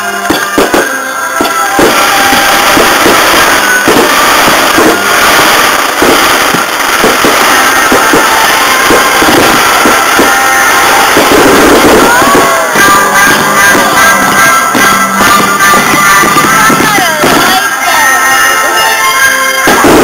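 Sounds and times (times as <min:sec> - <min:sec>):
fireworks bursting: 0:00.0 - 0:20.0
music playing: 0:00.0 - 0:20.0.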